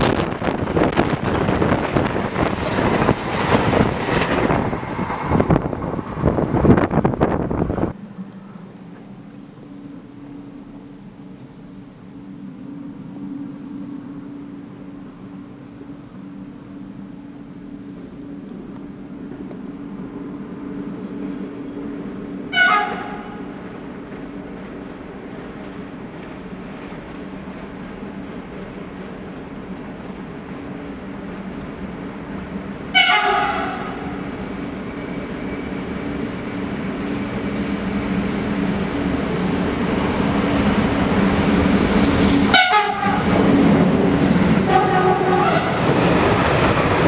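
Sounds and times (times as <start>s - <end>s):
train wheels clattering on rails: 0.0s - 8.0s, 22.8s - 47.0s
faint steady hum: 8.0s - 22.5s
train horn blast: 22.5s - 23.6s, 32.9s - 34.2s, 42.5s - 43.4s, 44.6s - 45.9s.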